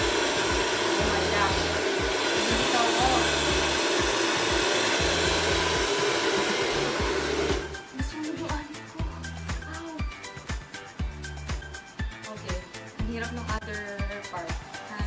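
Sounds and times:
hair dryer running: 0.0s - 7.9s.

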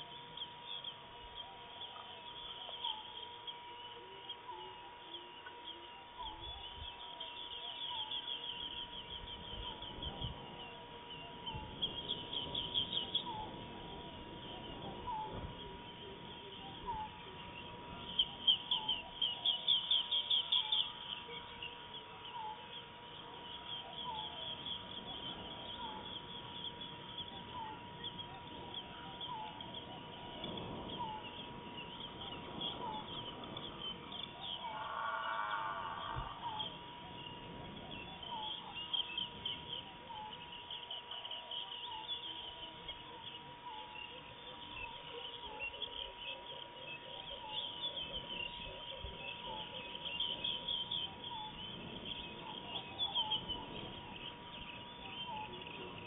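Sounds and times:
birds chirping trills: 0.0s - 56.0s
loud bird call: 0.0s - 56.0s
short insect note: 34.6s - 36.8s.

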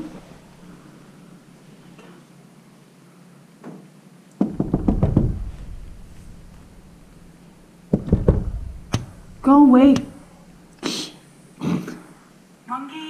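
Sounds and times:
sharp knocks and thumps: 4.4s - 10.3s.

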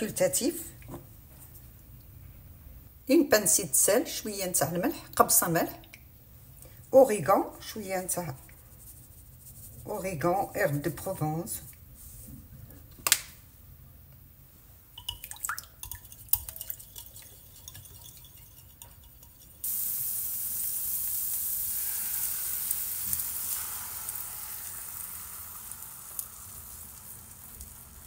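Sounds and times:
whisk tapping glass bowl: 15.0s - 19.6s
oil sizzling in frying pan: 17.4s - 28.0s.

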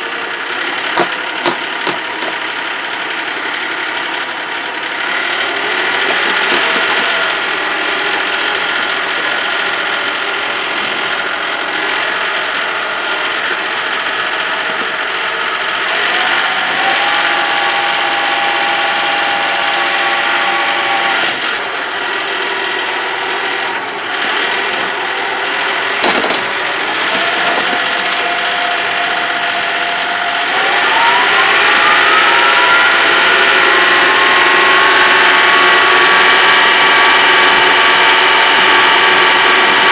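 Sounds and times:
tractor engine running: 0.0s - 39.9s
transmission gear whine: 0.0s - 39.9s.

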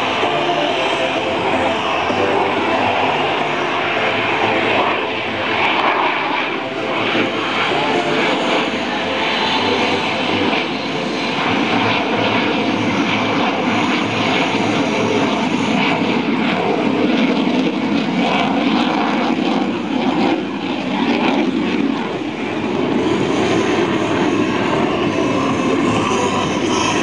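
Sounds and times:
jet engine rushing overhead: 0.0s - 27.0s.

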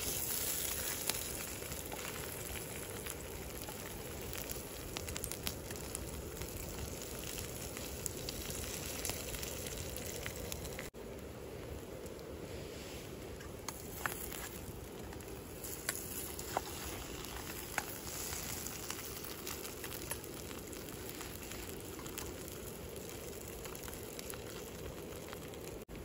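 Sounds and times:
food sizzling in a skillet: 0.0s - 10.9s, 15.4s - 25.6s
campfire crackling: 0.0s - 26.0s.

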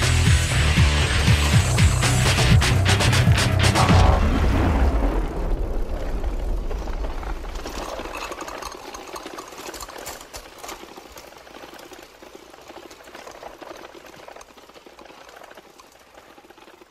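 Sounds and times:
rapid mechanical clicking: 7.4s - 16.9s.

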